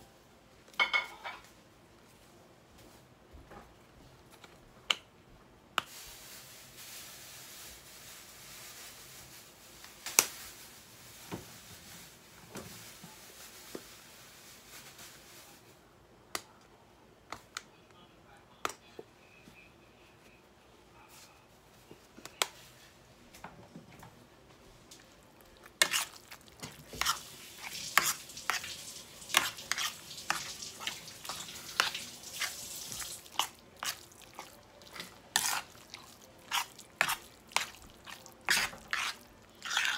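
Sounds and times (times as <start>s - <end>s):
shaker rattling seasoning: 25.8s - 39.9s.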